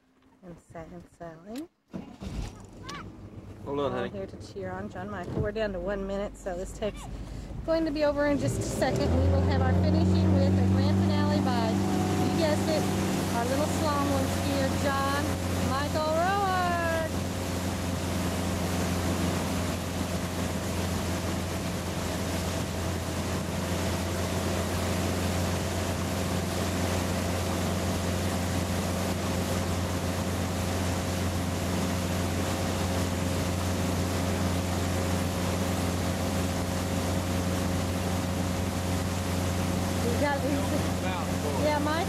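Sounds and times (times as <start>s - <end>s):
motorboat engine droning: 2.2s - 42.0s
rush of boat wake: 6.5s - 42.0s.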